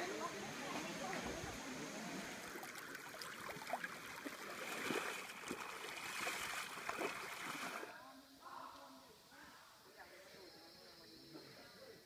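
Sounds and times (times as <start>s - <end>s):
water trickling over rock: 2.4s - 7.8s
feet wading splashes: 2.4s - 7.9s.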